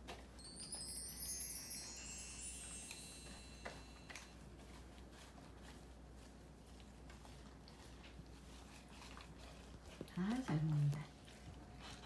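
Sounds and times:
twinkling chime: 0.2 - 4.4.

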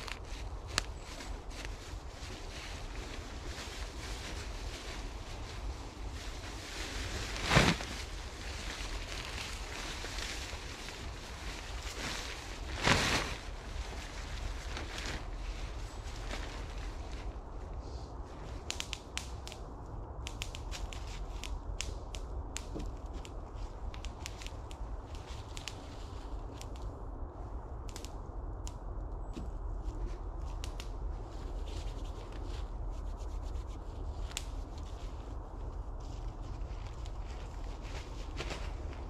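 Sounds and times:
tarp rustling and crinkling: 0.0 - 17.6, 31.2 - 39.0
steady low rumble: 0.0 - 39.0.

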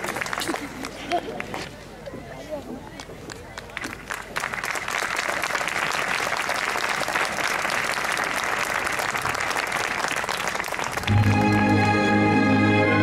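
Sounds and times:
audience applauding: 0.0 - 1.5, 3.5 - 12.2.

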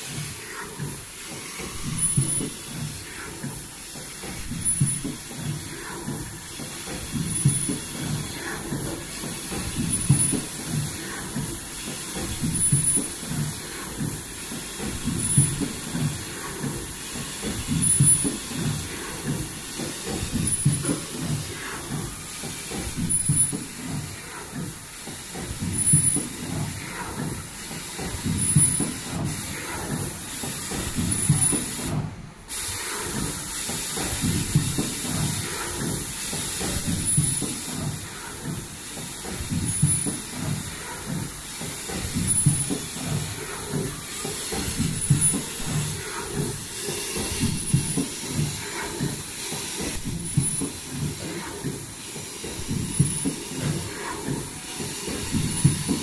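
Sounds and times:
steady hiss: 0.0 - 31.8, 32.5 - 56.0
machine clatter of rapid strokes: 0.0 - 56.0.

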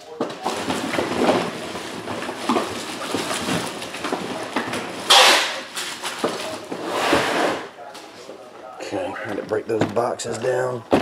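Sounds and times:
plastic wrap rustling: 0.1 - 7.6
plastic crinkling: 0.4 - 6.7.

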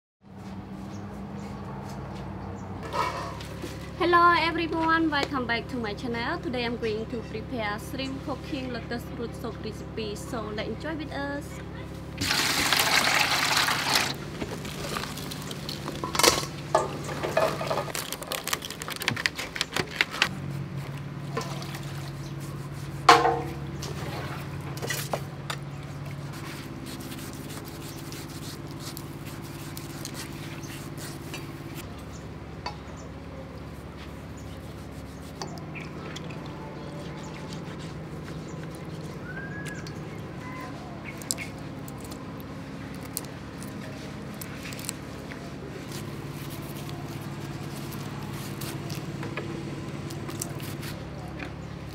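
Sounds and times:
water pouring into metal basin: 12.2 - 15.8
splashes and knocks in water: 21.3 - 22.2.

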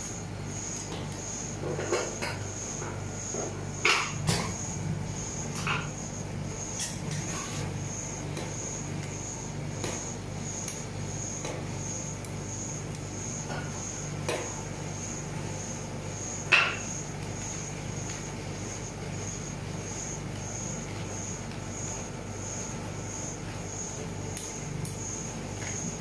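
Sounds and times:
machine hum: 0.0 - 16.4.

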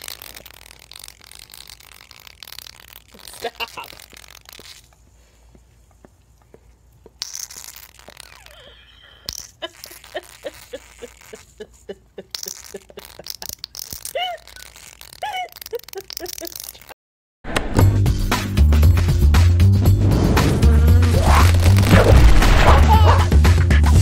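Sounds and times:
wet pops and squeaks from nozzle: 0.0 - 5.0, 6.0 - 17.0, 21.2 - 23.2.

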